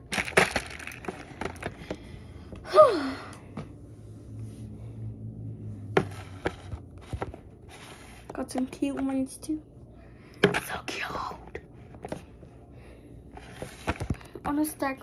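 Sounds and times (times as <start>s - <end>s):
girl sighing: 2.6s - 3.5s.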